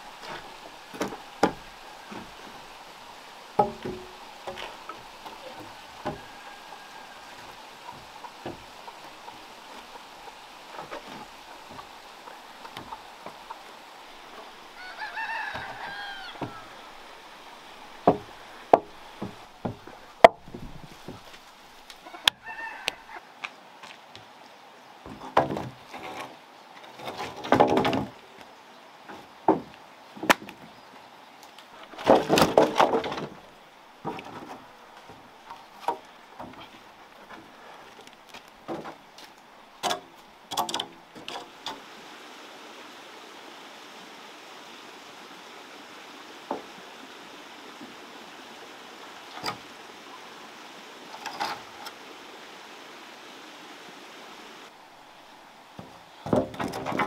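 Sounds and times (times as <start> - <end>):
wooden beams knocking and clattering: 0.0 - 2.7, 3.5 - 14.6, 15.3 - 21.4, 25.0 - 28.2, 29.1 - 30.8, 31.8 - 41.8, 55.8 - 57.0
faint steady background noise: 0.0 - 57.0.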